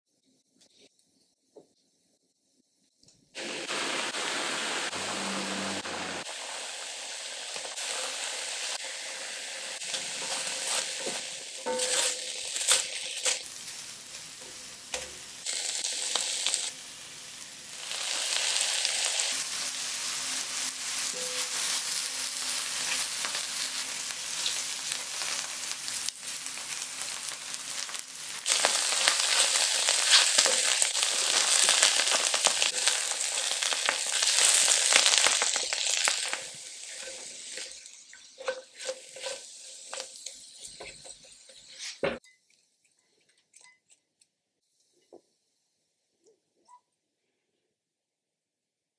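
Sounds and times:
mushrooms sizzling in a pan: 3.4 - 42.0
spatula stirring: 9.9 - 13.4, 35.3 - 43.9.

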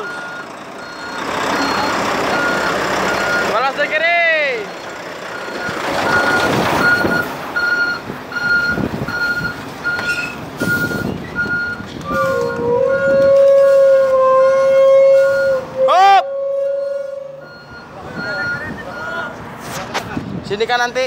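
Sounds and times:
truck reversing alarm beeping: 0.0 - 19.4
truck engine rumbling: 0.0 - 21.0.

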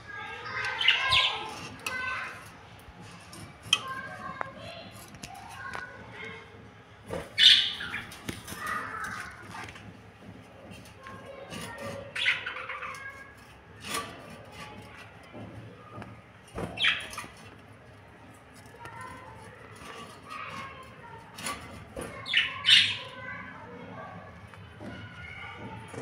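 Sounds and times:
lovebirds chirping and squawking: 0.2 - 2.5, 7.1 - 9.6, 11.3 - 14.8, 16.6 - 17.5, 22.0 - 23.4.

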